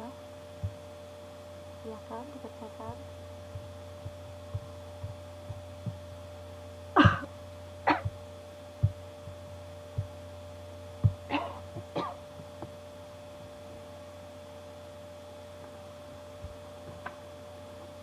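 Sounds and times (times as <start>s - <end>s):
electrical hum: 0.0s - 18.0s
person coughing: 7.0s - 7.3s, 7.9s - 8.1s, 11.3s - 12.2s.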